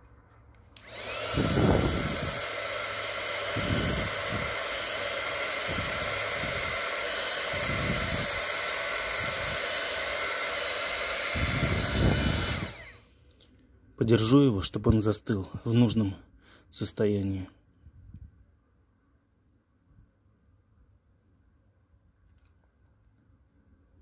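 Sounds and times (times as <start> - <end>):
hair dryer blowing: 0.7 - 13.1.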